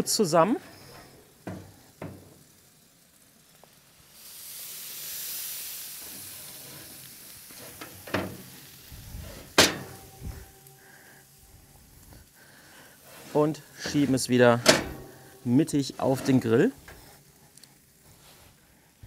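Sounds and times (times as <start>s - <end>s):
fat and cheese sizzling: 0.0s - 19.0s
metal griddle plates clanking: 0.6s - 2.5s, 6.0s - 11.3s, 13.1s - 17.2s.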